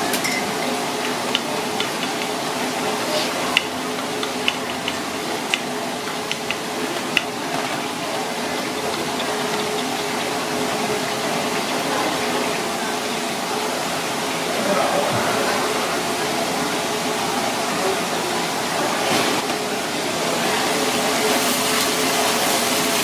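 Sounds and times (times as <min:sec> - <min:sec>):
steady background hum: 0:00.0 - 0:23.0.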